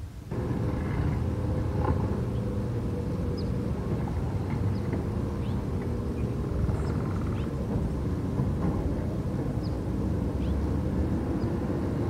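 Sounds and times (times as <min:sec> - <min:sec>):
garbage truck diesel engine: 0:00.3 - 0:06.9.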